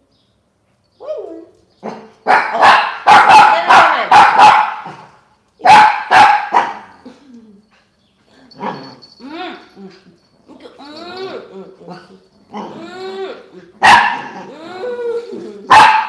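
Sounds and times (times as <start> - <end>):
small dog barking: 1.8 - 6.9, 13.8 - 14.5, 15.7 - 16.0.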